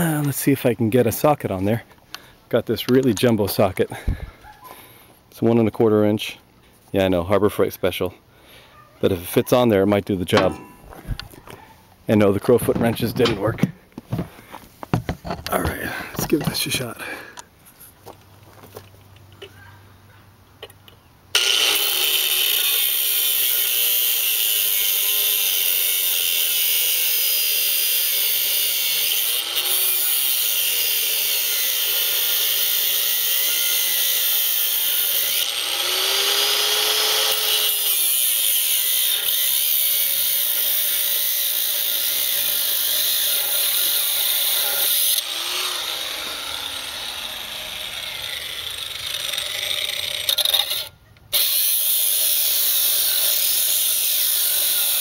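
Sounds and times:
grinder cutting steel: 0:21.3 - 0:55.0.

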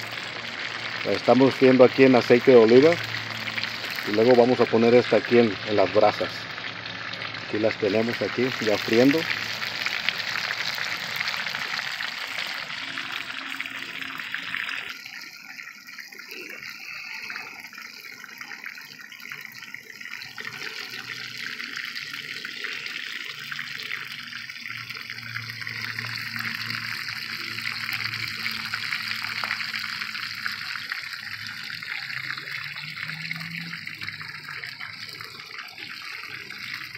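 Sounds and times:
fish sizzling in a pan: 0:00.0 - 0:24.0, 0:24.7 - 0:36.9.

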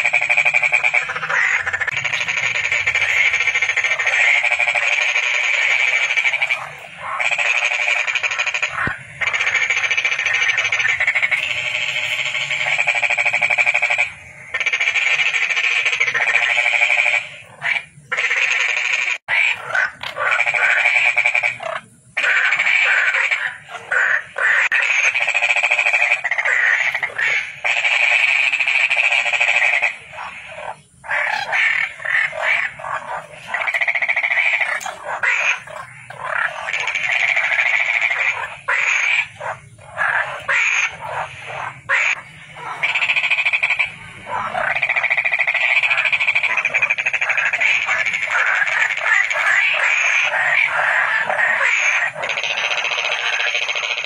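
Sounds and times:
frogs calling: 0:00.0 - 0:54.0.

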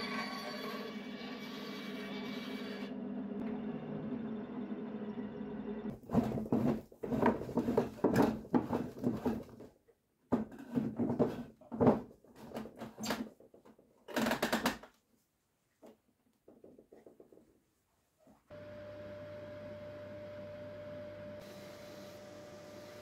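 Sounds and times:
scraping and knocking on wood: 0:05.9 - 0:13.7.

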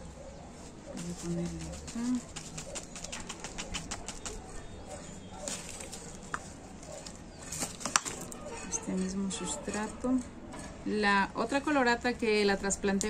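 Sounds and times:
potting soil rustling and crackling: 0:00.5 - 0:10.2.

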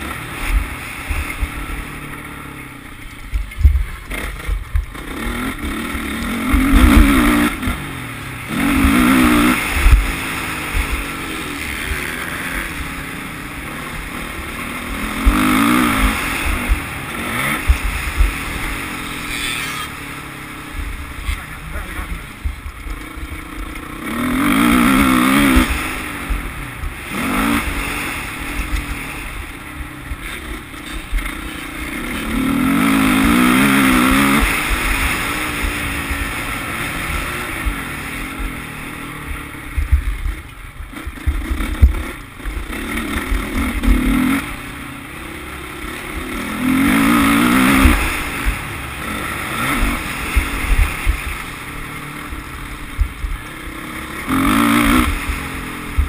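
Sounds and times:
motocross bike engine revving: 0:00.0 - 0:56.0
wind rumble on microphone: 0:03.1 - 0:05.1, 0:31.0 - 0:44.1.

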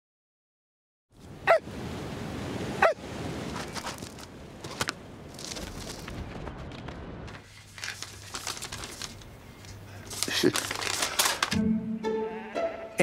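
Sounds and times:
wind: 0:01.1 - 0:11.6
dog barking: 0:02.8 - 0:03.0.

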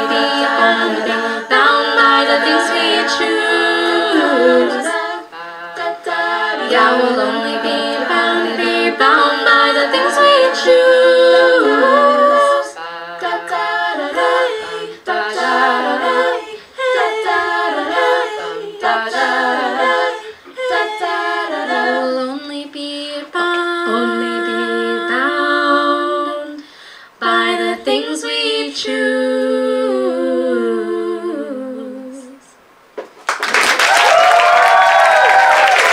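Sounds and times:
a cappella group singing: 0:00.0 - 0:32.6.

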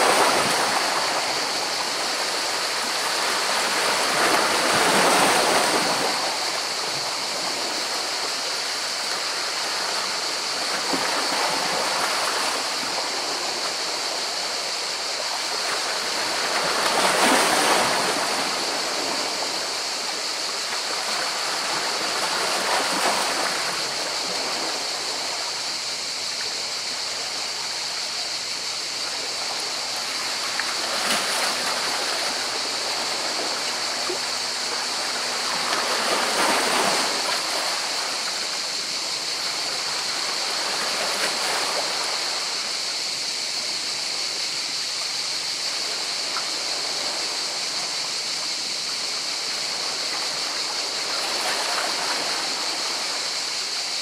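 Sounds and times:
steady high-pitched hiss: 0:00.0 - 0:54.0.

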